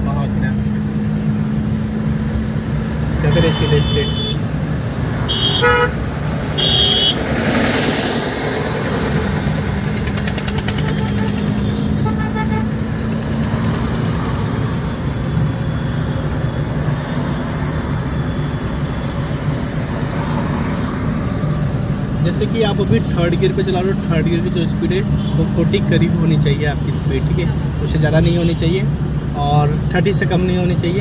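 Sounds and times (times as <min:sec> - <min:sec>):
car road and engine noise: 0:00.0 - 0:31.0
short high car horn: 0:05.3 - 0:06.0, 0:06.6 - 0:07.2.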